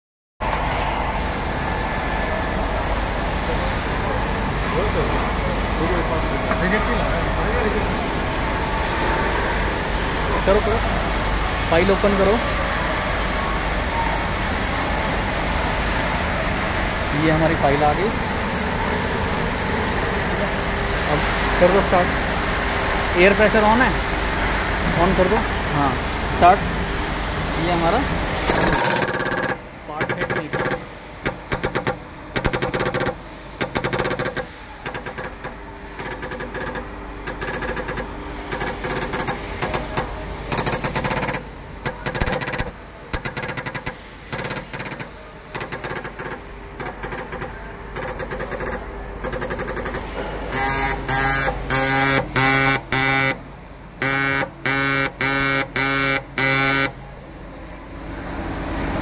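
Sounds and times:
marking machine buzzing rattle: 28.4s - 53.4s, 54.0s - 57.0s.

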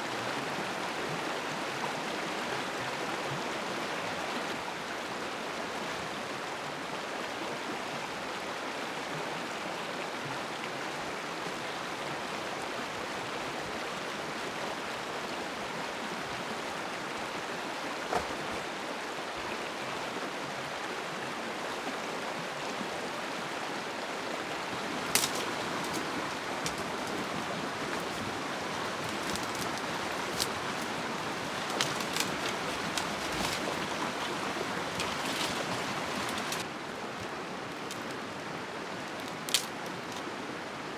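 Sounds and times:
stream flowing: 0.0s - 40.9s.

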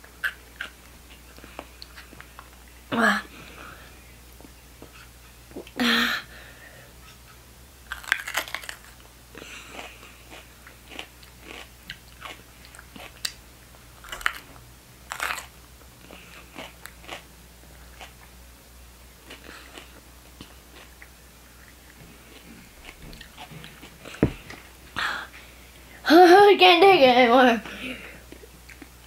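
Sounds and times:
pepper crunching while chewed: 7.9s - 9.0s, 9.7s - 13.4s, 14.0s - 18.3s.

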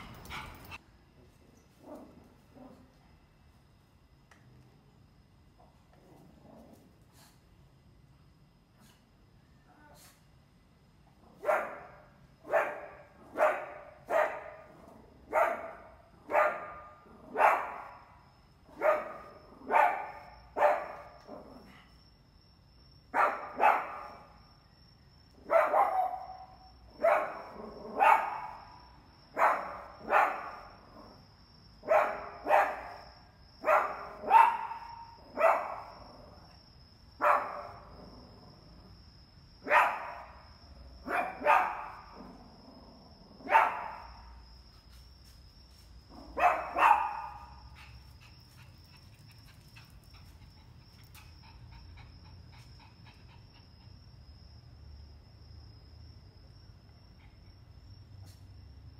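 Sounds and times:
puppy barking: 11.4s - 14.7s, 15.3s - 18.0s, 18.8s - 21.2s, 23.2s - 24.2s, 25.5s - 28.7s, 29.4s - 30.7s, 31.8s - 33.0s, 33.6s - 35.9s, 37.2s - 37.8s, 39.7s - 40.3s, 41.1s - 42.2s, 43.4s - 44.2s, 46.4s - 47.7s.

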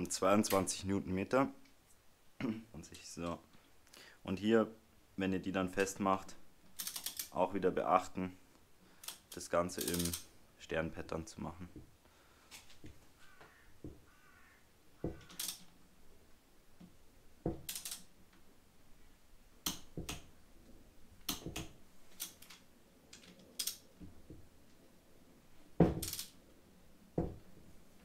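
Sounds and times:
wrench and socket clicking: 6.8s - 7.3s, 9.0s - 10.3s, 15.3s - 15.6s, 17.7s - 18.1s, 23.2s - 23.8s, 26.0s - 26.4s.

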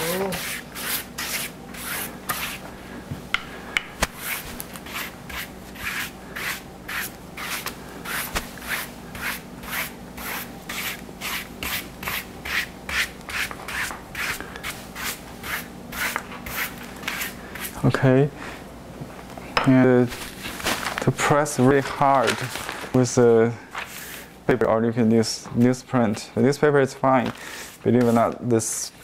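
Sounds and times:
brush scrubbing on damp paper: 0.0s - 2.6s.

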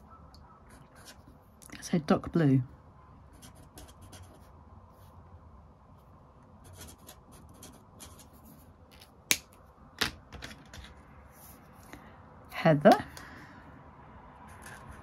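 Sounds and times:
marker scratching on paper: 0.0s - 1.4s, 3.3s - 5.1s, 6.6s - 8.6s, 14.5s - 15.0s.

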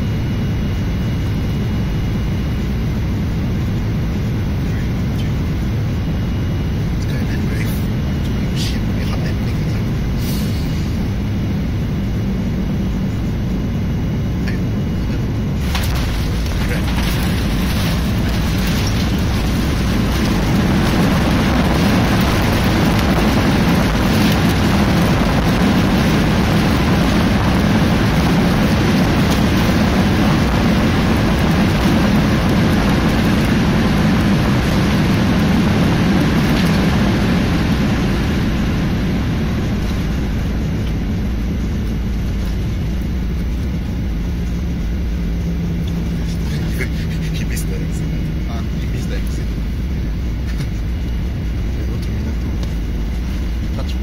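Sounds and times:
cabin low hum: 0.0s - 54.0s
jet engines roaring in reverse thrust: 0.0s - 54.0s
wheels rumbling on runway: 0.0s - 54.0s.

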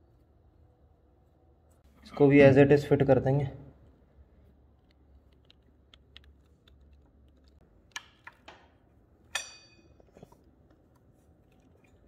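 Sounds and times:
sharp metallic clink: 9.3s - 10.0s.

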